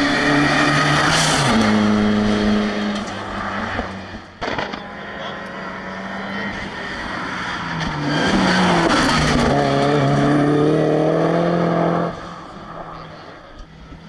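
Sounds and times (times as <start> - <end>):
car engine accelerating hard: 0.0 - 14.0.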